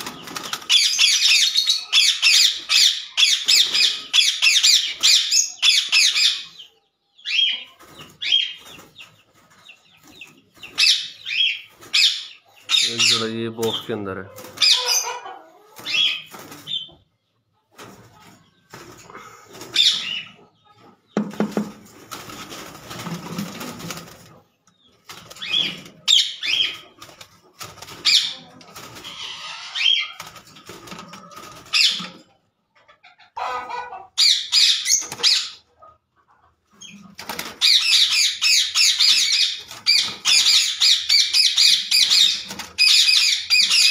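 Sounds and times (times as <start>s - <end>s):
wings rustling in cage: 0.0s - 1.2s, 21.3s - 32.4s, 36.9s - 37.8s, 42.0s - 43.6s
parakeets screeching: 0.1s - 6.6s, 7.2s - 8.6s, 10.7s - 16.9s, 19.7s - 20.4s, 25.3s - 27.0s, 27.9s - 30.4s, 31.5s - 32.2s, 33.4s - 35.6s, 36.8s - 43.9s.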